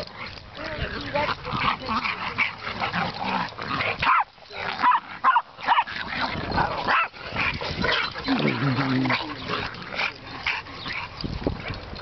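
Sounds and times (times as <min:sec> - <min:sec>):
dogs barking: 0:00.0 - 0:12.0.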